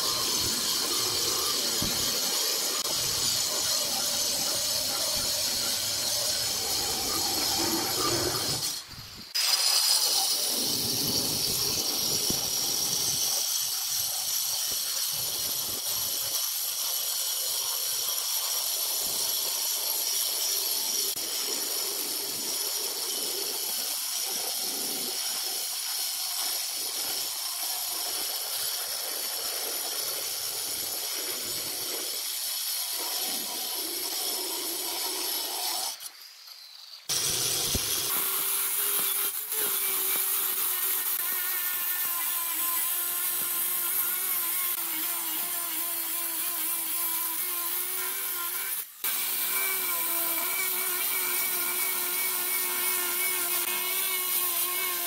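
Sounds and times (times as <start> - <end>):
stone cutter whining through stone: 0.0 - 55.0.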